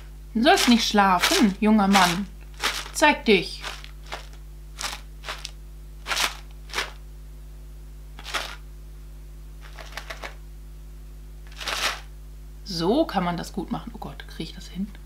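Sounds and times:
granola rustling in a pot: 0:00.0 - 0:07.0, 0:08.2 - 0:08.6, 0:09.6 - 0:10.4, 0:11.4 - 0:12.1.

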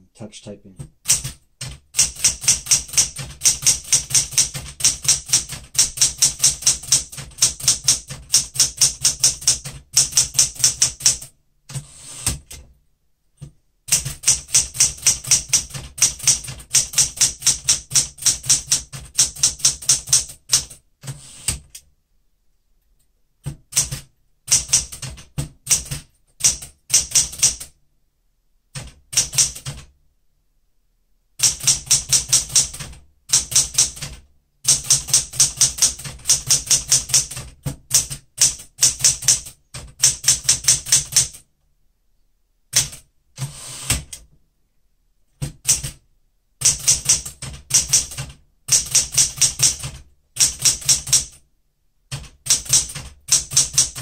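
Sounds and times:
manual typewriter typing: 0:01.0 - 0:12.7, 0:13.9 - 0:21.8, 0:23.5 - 0:27.7, 0:28.8 - 0:29.9, 0:31.4 - 0:41.4, 0:42.7 - 0:44.2, 0:45.4 - 0:46.0, 0:46.6 - 0:51.4, 0:52.1 - 0:54.0.

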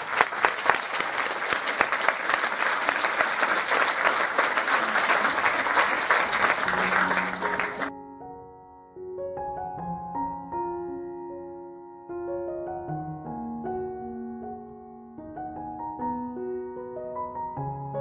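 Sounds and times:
audience applauding: 0:00.0 - 0:07.9
soft piano music: 0:06.6 - 0:18.0.

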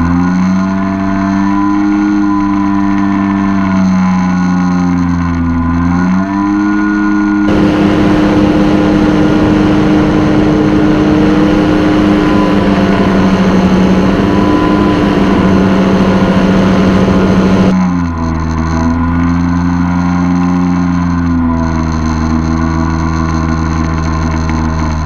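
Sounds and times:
paramotor engine and propeller: 0:00.0 - 0:25.0
droning music: 0:00.1 - 0:17.8.

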